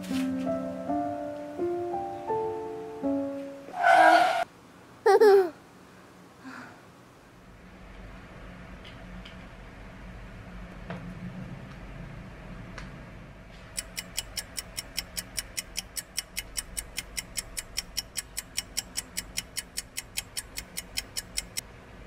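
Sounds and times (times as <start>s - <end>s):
rapid clock-like ticking: 13.7s - 21.6s.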